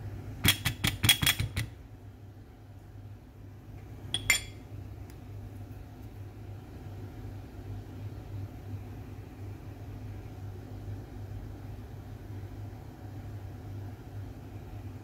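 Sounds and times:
steady low hum: 1.6 - 15.0
metallic clink: 4.2 - 4.6.

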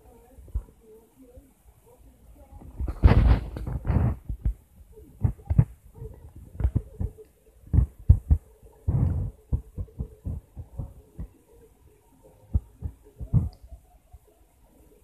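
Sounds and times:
faint steady hum: 0.0 - 15.0
fingers tapping touchscreen: 5.2 - 11.4, 12.5 - 13.7.

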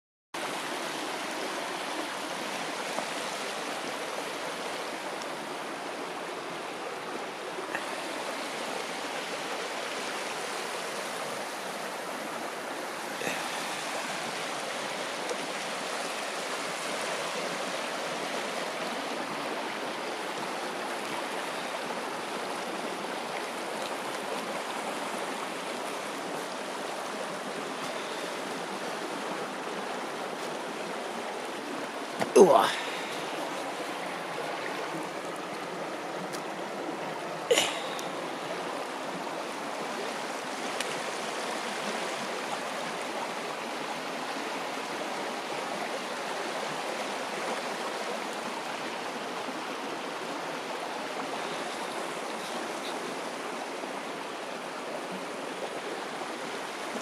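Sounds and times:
stream water flowing: 0.4 - 57.0.

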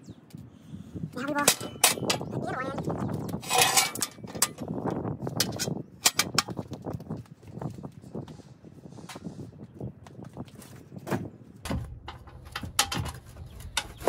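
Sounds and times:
metal clanks and knocks: 1.4 - 2.4, 3.4 - 6.6, 11.6 - 14.0
metal step scraping: 3.3 - 4.7, 11.6 - 14.0.

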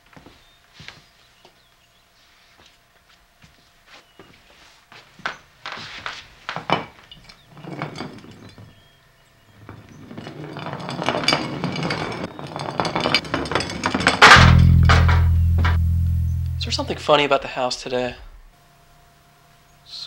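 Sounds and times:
jar rolling on wooden floor: 9.7 - 14.3
glass jar knocking on floor: 14.2 - 16.8.

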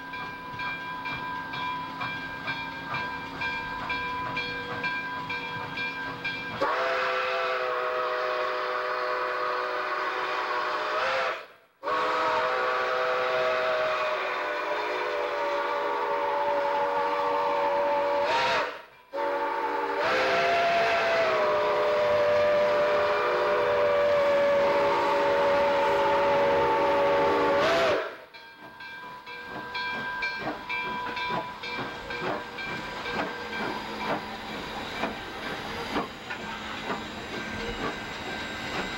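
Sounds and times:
train wheels clicking over rails: 0.0 - 7.0, 20.0 - 38.9
steam hiss: 5.6 - 28.3, 29.4 - 38.9
steam whistle blasts: 6.6 - 28.3.

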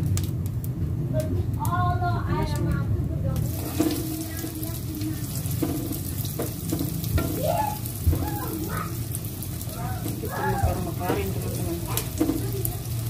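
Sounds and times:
oil sizzling in a wok: 3.4 - 13.0
metal spatula knocking against pan: 5.5 - 8.6, 10.0 - 12.6.

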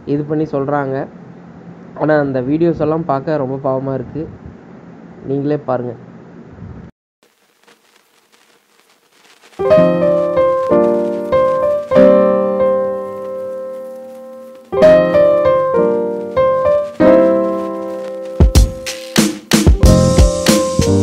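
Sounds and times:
piano chords: 9.6 - 21.0
drum beat: 14.9 - 21.0.

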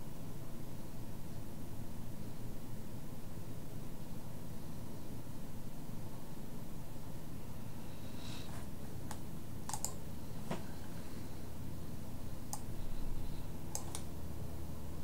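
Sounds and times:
low background hum: 0.0 - 15.0
computer keys clicking: 9.0 - 10.0, 12.5 - 12.8, 13.7 - 14.1.

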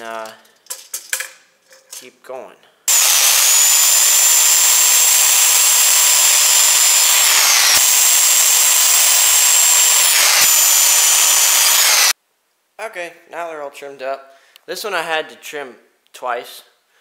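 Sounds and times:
circular saw cutting wood: 2.9 - 12.2.

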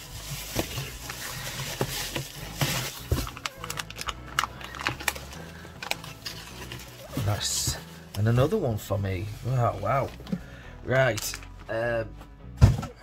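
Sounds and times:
bubble wrap rustling and crinkling: 0.0 - 10.2.

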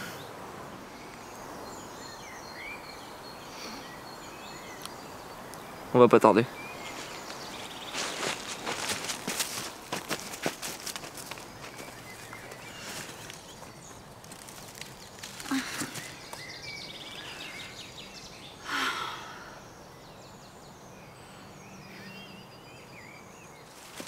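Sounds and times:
small birds chirping: 0.0 - 24.0
rustling: 6.8 - 16.5, 23.7 - 24.0.

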